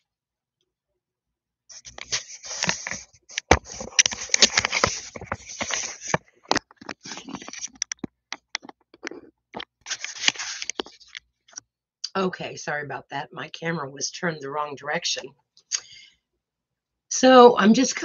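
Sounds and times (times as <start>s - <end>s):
camera handling noise: 1.8s - 8.0s, 9.6s - 11.2s
sharp clicks and knocks: 1.8s - 11.2s.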